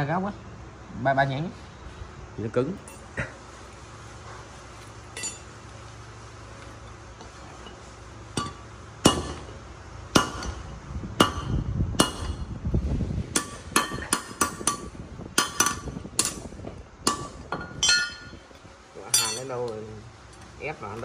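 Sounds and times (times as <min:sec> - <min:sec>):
hammer on sheet metal: 0:08.4 - 0:09.5, 0:10.1 - 0:12.5, 0:13.3 - 0:18.3.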